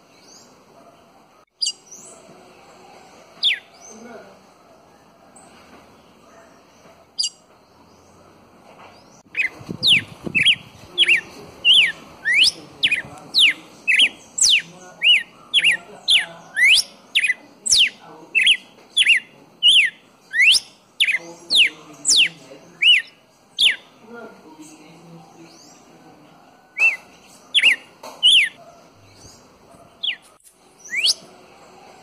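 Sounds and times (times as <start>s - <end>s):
bird singing whistled notes: 1.6s - 2.2s, 3.4s - 4.0s, 9.3s - 23.9s, 26.7s - 29.2s, 30.0s - 31.3s.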